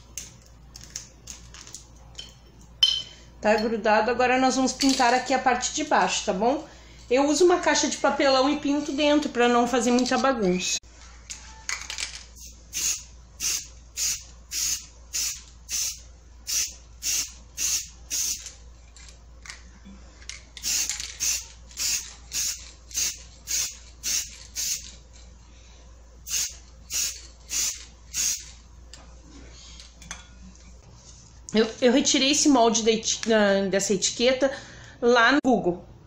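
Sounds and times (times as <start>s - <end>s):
spray paint can hissing: 12.4s - 18.6s, 20.6s - 25.0s, 26.3s - 28.5s.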